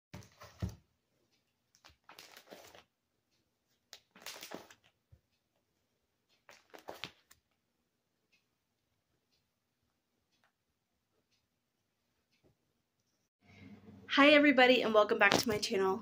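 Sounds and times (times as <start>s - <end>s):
binder pages rustling: 1.6s - 2.9s, 3.7s - 5.0s, 6.4s - 7.6s.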